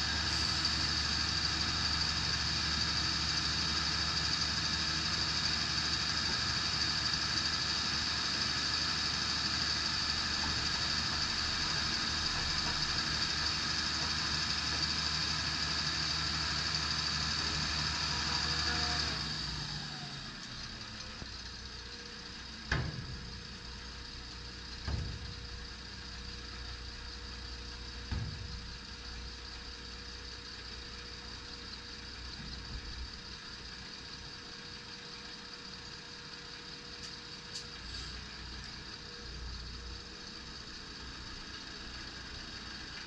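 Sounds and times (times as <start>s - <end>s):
diesel truck engine idling: 0.0s - 43.0s
tipper body clunks: 22.6s - 29.4s.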